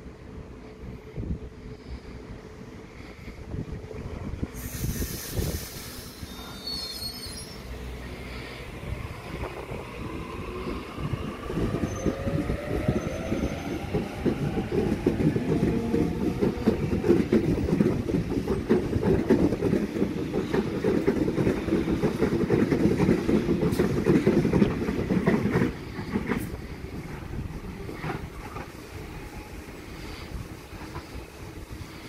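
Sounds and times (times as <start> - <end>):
train wheels clattering: 11.6 - 27.2.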